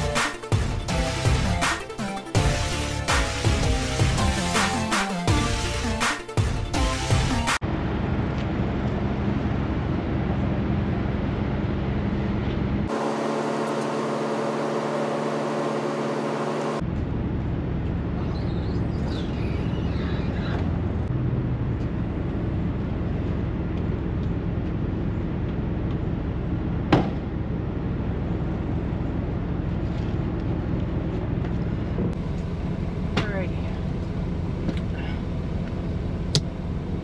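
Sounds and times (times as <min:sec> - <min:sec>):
diesel truck engine idling: 0:07.8 - 0:37.0.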